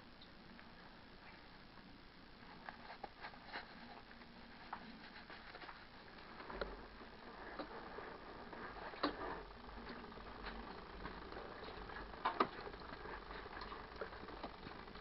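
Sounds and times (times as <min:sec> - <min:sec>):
motorcycle low rumble: 0:06.1 - 0:15.0.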